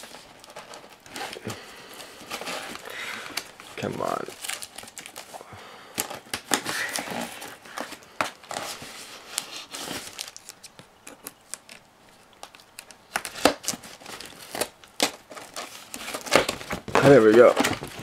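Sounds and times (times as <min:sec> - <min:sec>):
packaging being torn open: 0:09.4 - 0:18.0.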